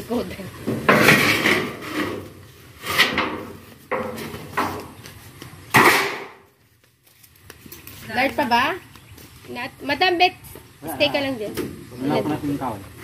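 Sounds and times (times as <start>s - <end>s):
metal roofing sheets clattering: 0.7s - 4.9s.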